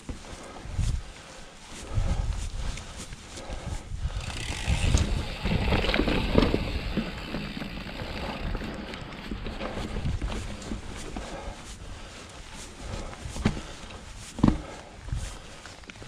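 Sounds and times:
bike rattling clicks: 3.5s - 11.4s
bike tyres rolling over rocks: 4.0s - 16.0s.

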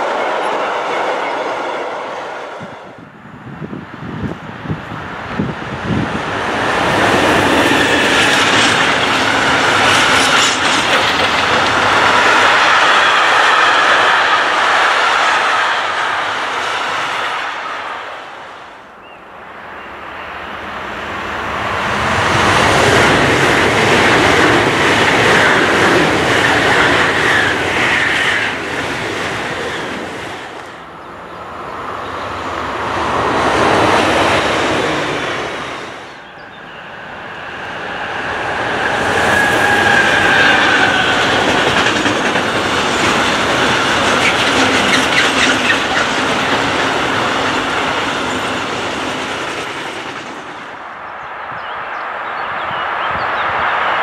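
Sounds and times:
electric train passing: 0.0s - 54.0s
high-speed train rushing by: 0.0s - 54.0s
freight train wheels clattering: 6.2s - 17.2s, 38.5s - 50.8s.

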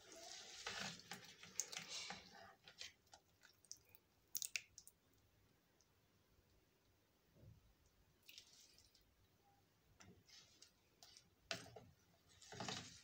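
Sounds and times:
wet sardines squishing: 0.2s - 5.9s, 8.2s - 9.2s.

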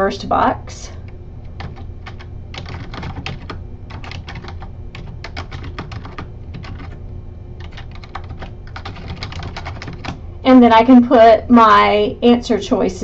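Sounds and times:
steady low hum: 0.0s - 13.0s
typing on computer keyboard: 1.5s - 7.0s, 7.6s - 10.2s.

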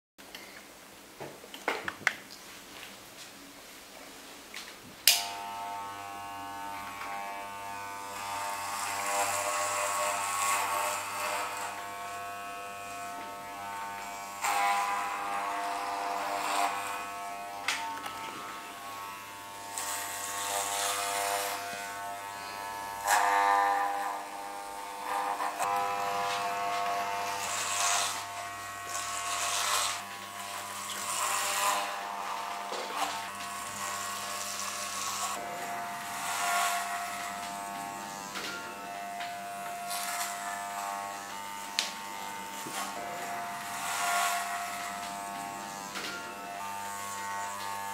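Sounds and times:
hair clippers buzzing: 5.0s - 47.9s
hair clippers switch click: 5.1s - 5.4s.

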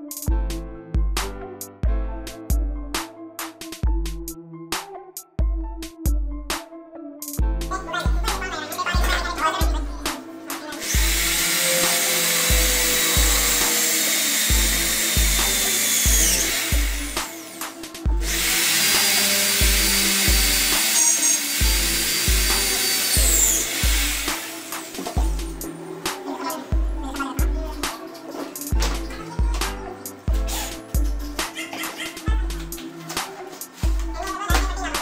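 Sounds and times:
music with thumping beat: 0.0s - 35.0s
electric jigsaw whirring: 10.8s - 25.3s.

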